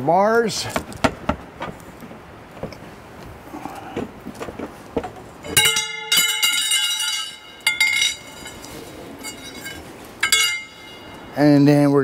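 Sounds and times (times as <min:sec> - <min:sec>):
metal bars clanging: 0:05.4 - 0:11.4
metal bars clicking: 0:05.5 - 0:11.3.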